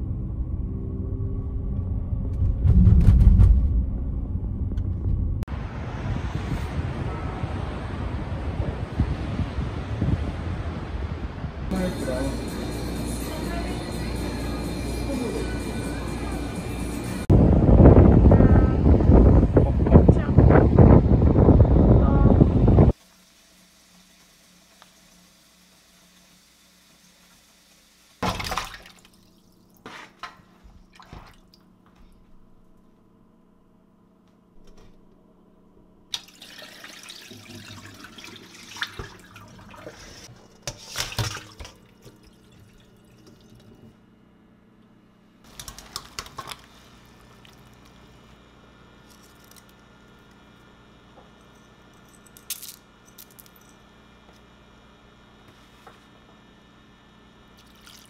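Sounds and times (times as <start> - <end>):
tap water running into sink: 36.1 - 43.8.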